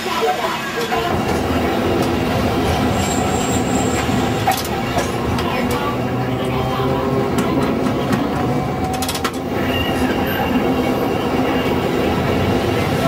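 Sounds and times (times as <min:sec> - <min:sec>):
electric tram rumbling on rails: 0:00.0 - 0:13.0
clicks from wheels and track: 0:04.0 - 0:05.9, 0:07.3 - 0:09.5.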